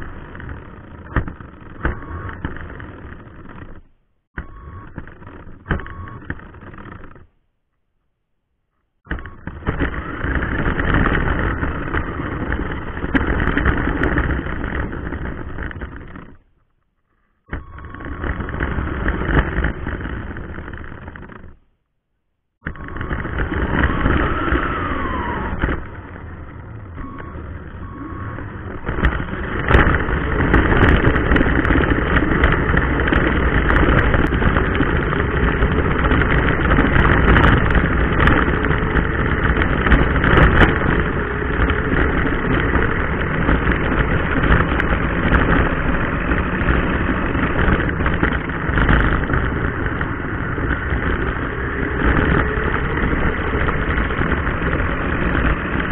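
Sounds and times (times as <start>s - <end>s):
tyres rumbling over pavement: 0.0s - 7.4s, 9.1s - 21.7s, 22.6s - 55.9s
sharp knocks from bumps: 0.4s - 7.3s
rc car electric motor whirring: 22.7s - 48.0s.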